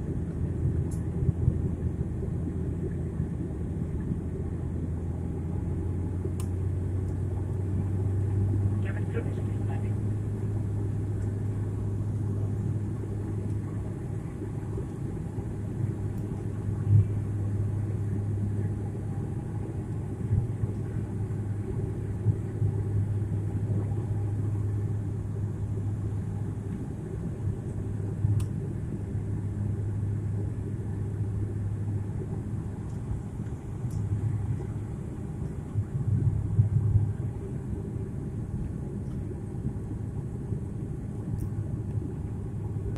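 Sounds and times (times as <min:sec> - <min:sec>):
aircraft engines and propellers droning: 0:00.0 - 0:42.9
low hum: 0:00.0 - 0:42.9.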